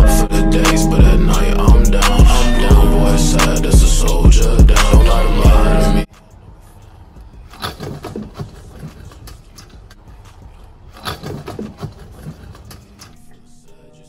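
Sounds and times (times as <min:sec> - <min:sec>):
scooter wheels rolling on concrete: 0:06.0 - 0:13.2
scooter clattering on ground: 0:06.1 - 0:13.2.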